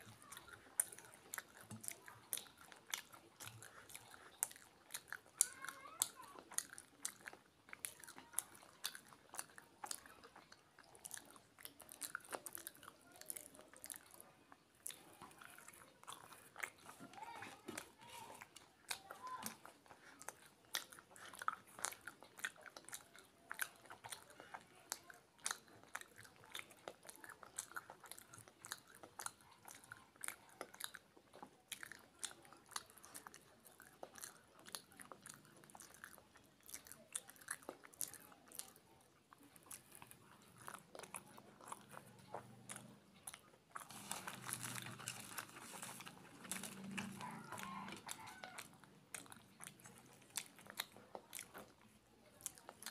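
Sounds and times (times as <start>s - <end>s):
chewing with wet mouth clicks: 0.0s - 52.9s
crisp bread tearing: 43.8s - 48.6s.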